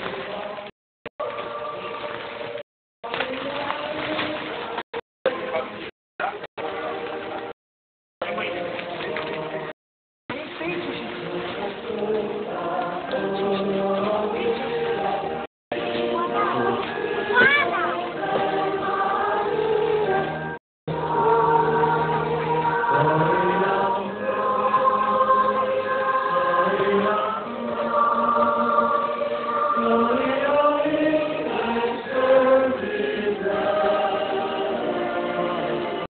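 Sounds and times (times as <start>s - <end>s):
children singing a carol: 0.4s - 2.3s, 11.2s - 36.0s.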